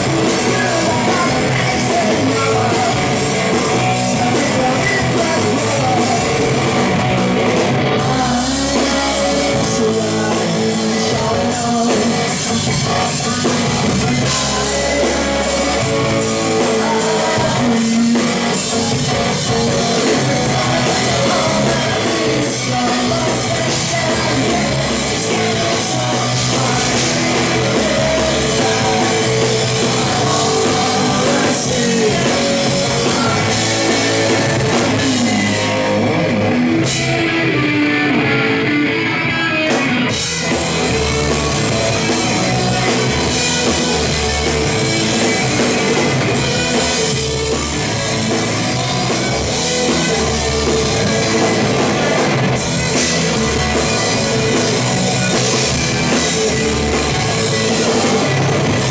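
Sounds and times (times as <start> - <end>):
person singing into microphone: 0.0 - 6.7, 8.0 - 36.2
drum kit: 0.0 - 58.9
electric guitars: 0.0 - 58.9.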